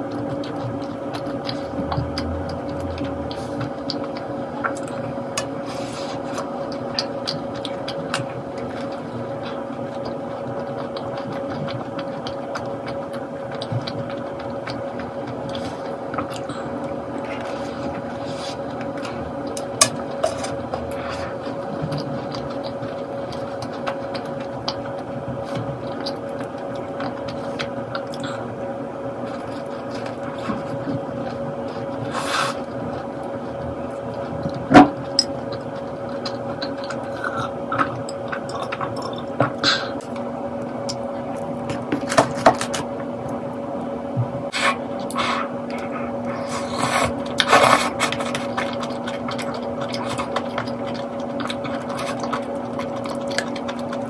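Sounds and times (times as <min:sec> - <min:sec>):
chewing a soft cookie: 0:00.0 - 0:43.6, 0:44.5 - 0:54.0
steady low hum: 0:00.0 - 0:54.0.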